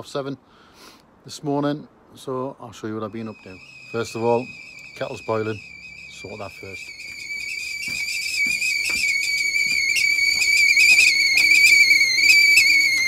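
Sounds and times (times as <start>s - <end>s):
kettle whistling: 3.1s - 13.0s.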